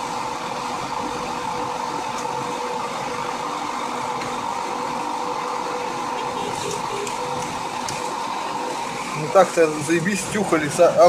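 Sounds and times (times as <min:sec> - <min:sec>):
car cabin engine hum: 0:00.0 - 0:11.0.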